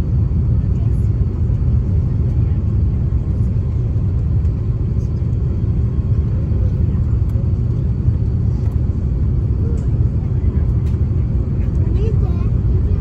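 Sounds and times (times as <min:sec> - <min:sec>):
jet engine low rumble: 0:00.0 - 0:13.0.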